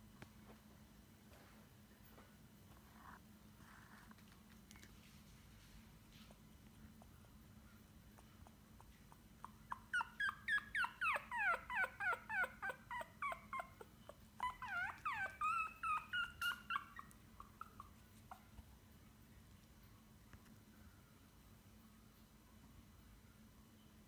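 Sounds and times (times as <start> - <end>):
puppy yipping: 8.9 - 18.6.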